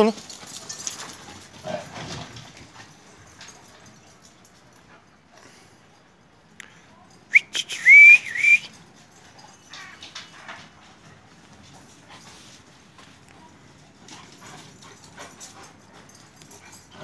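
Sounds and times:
person whistling: 7.3s - 8.7s.

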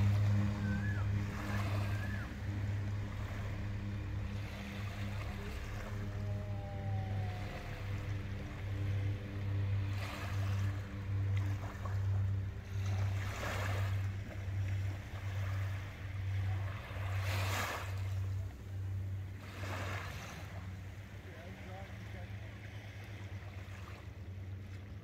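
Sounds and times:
distant seaplane propeller engines droning: 0.0s - 25.0s
small waves washing onto shore: 0.0s - 25.0s.

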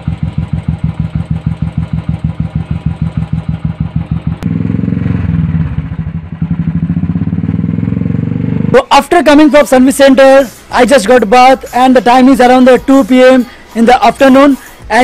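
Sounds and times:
motorcycle exhaust thumping: 0.0s - 8.8s.

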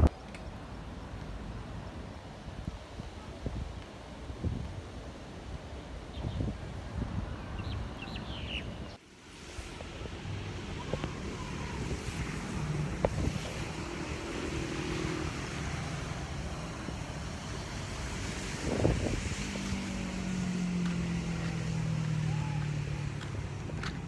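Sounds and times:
traffic on wet road: 0.1s - 24.0s
low vehicle engine drone: 9.8s - 24.0s.

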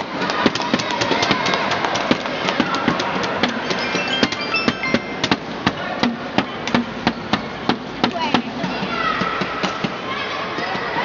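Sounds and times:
sharp claps and cracks: 0.0s - 3.9s
crowd din: 0.0s - 11.0s.

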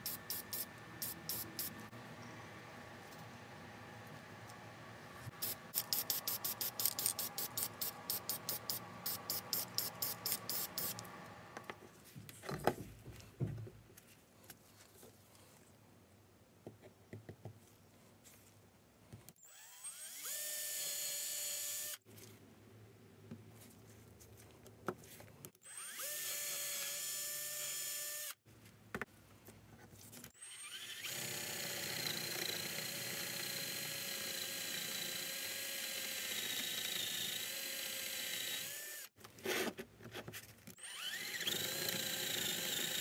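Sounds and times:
cordless drill drilling into wood: 19.4s - 22.0s, 25.6s - 28.4s, 30.4s - 39.1s, 40.8s - 43.0s.

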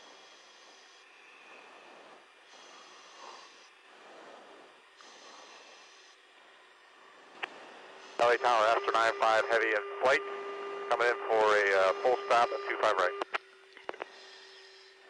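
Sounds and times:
radio static hiss: 7.4s - 14.8s.

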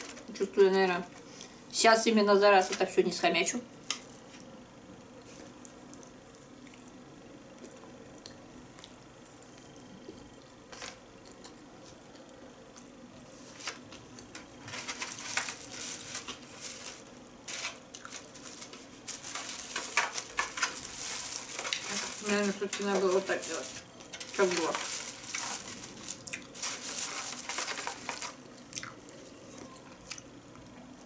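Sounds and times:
plastic crinkling and rustling: 0.0s - 1.3s, 10.7s - 11.0s, 13.3s - 29.7s
soft chewing: 3.9s - 14.3s, 17.8s - 18.3s, 25.4s - 26.6s, 28.4s - 31.0s.

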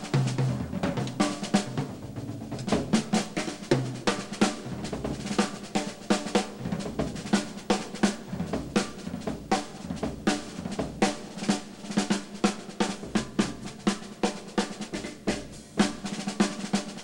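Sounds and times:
bass drum: 0.0s - 11.3s
drum solo with sticks: 0.0s - 17.0s.

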